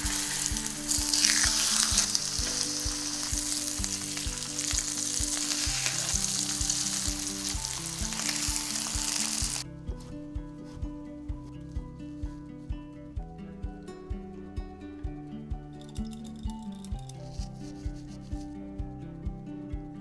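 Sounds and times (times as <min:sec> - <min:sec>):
metal tongs moving chicken: 0:00.0 - 0:08.9
chicken sizzling in hot oil: 0:00.0 - 0:09.6.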